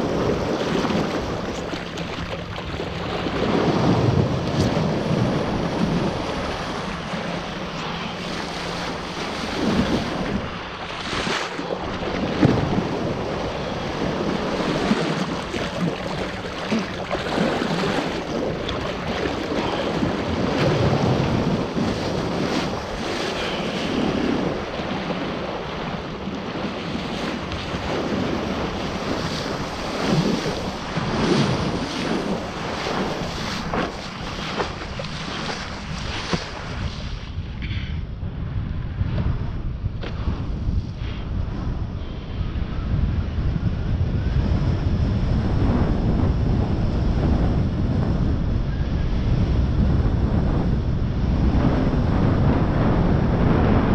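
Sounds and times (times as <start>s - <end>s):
water rushing and splashing: 0.0s - 37.2s
wind buffeting microphone: 0.0s - 53.9s.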